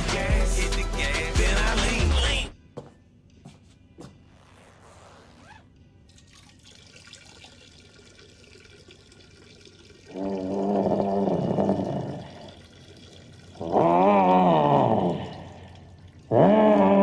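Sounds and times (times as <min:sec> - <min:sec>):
liquid splashing into urinal: 0:06.1 - 0:16.4.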